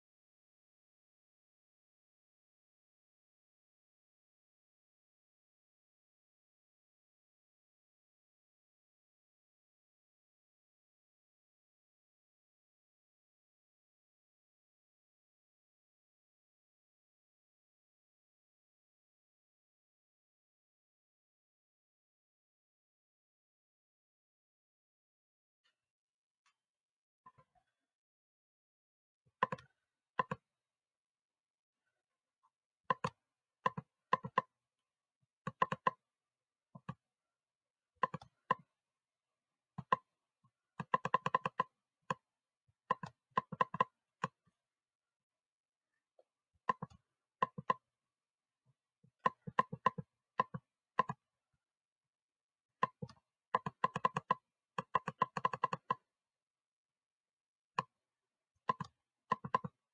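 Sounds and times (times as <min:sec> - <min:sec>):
computer mouse clicking rapidly: 0:32.9 - 0:34.4, 0:35.5 - 0:36.0, 0:38.0 - 0:38.3, 0:40.8 - 0:41.7, 0:42.9 - 0:44.4, 0:49.3 - 0:51.2, 0:52.8 - 0:56.0, 0:58.7 - 0:59.8.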